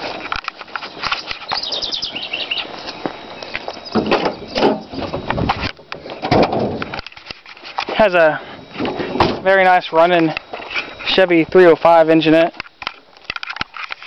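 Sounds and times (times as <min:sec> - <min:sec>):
high chirps: 0:01.1 - 0:05.2
hands working car door and hood: 0:03.9 - 0:07.0.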